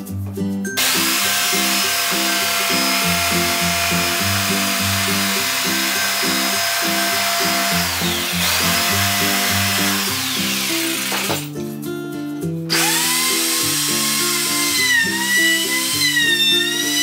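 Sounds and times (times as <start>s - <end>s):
background music with beat: 0.0s - 16.5s
electric jigsaw cutting plywood: 0.8s - 11.4s, 12.7s - 17.0s.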